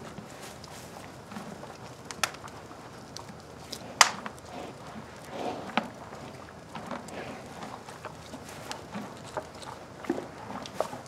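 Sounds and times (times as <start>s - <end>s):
wood fire crackling and popping: 1.6s - 7.2s.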